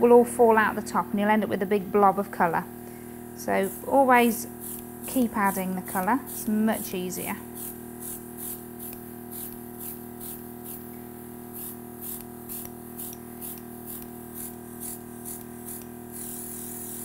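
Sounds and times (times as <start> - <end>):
steady low hum: 0.0 - 17.0
airbrush spraying in hissing bursts: 3.6 - 17.0.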